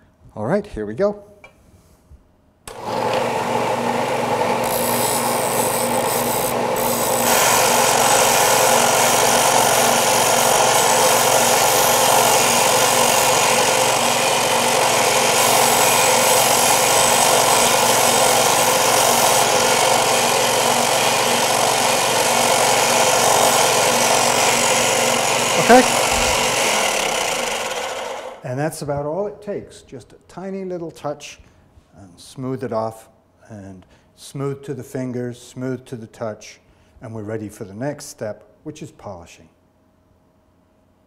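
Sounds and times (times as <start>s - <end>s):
sander motor hum: 2.7s - 28.4s
steel grinding on abrasive: 4.6s - 28.4s.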